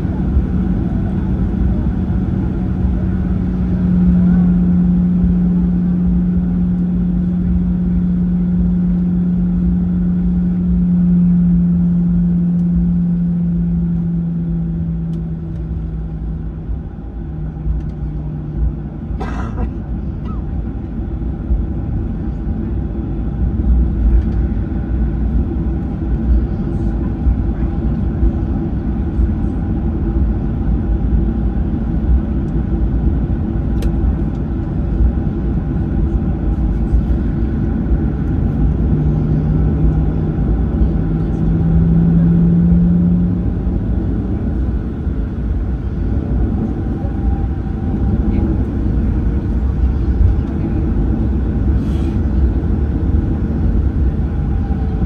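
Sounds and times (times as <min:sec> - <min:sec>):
deeper hum rising in pitch: 0:00.0 - 0:19.0, 0:36.8 - 0:55.0
aircraft cabin engine rumble: 0:00.0 - 0:55.0
steady hums: 0:00.0 - 0:55.0.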